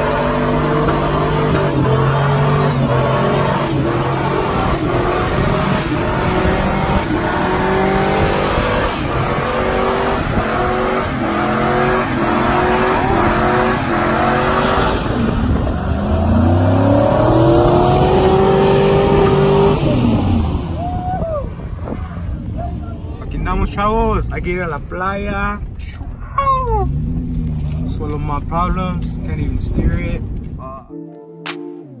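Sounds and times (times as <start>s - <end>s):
truck engine revving hard: 0.0s - 23.1s.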